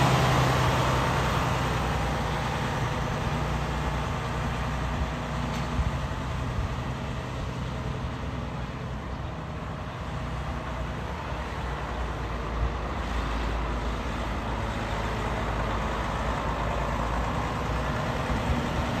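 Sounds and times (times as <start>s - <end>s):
truck diesel engine running: 0.0s - 19.0s.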